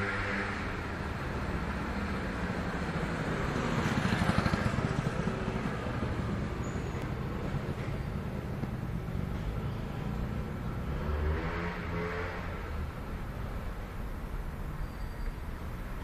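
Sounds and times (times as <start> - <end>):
car engine passing: 9.9 - 13.6.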